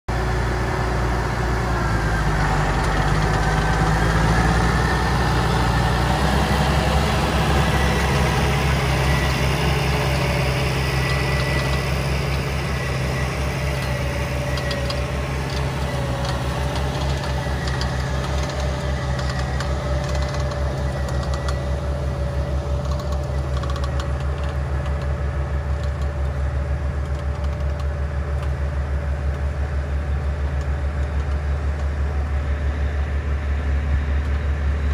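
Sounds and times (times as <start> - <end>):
steady whine: 0.1 - 34.9
tractor diesel engine under load: 0.1 - 34.9.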